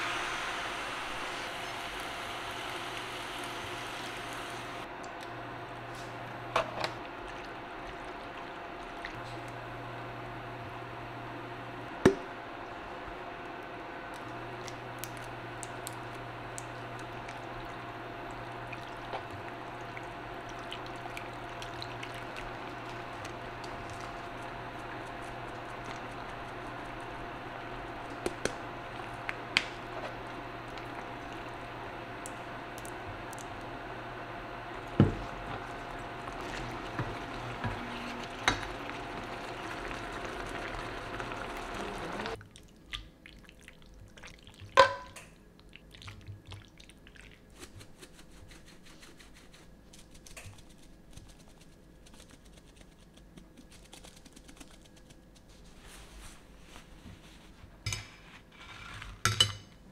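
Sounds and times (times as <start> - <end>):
faint hum: 0.0 - 43.2
sauce simmering in a frying pan: 33.4 - 42.4.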